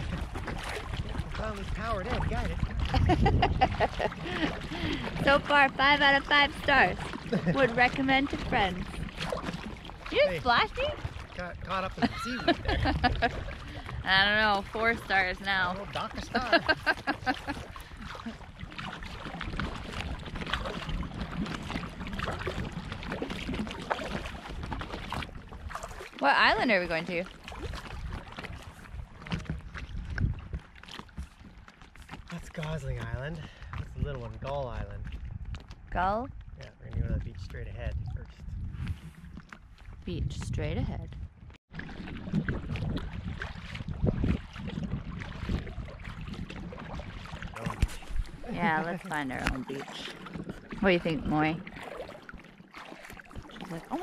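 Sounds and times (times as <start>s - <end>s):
kayak paddles splashing: 0.0s - 36.6s, 38.4s - 54.0s
wind rumble on microphone: 0.0s - 52.4s.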